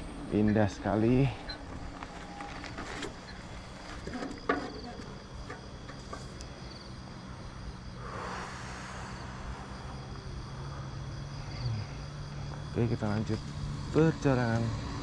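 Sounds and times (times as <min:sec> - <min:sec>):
crickets chirring: 0:00.0 - 0:15.0
steady low hum: 0:00.0 - 0:15.0
short rush of noise: 0:08.0 - 0:11.0.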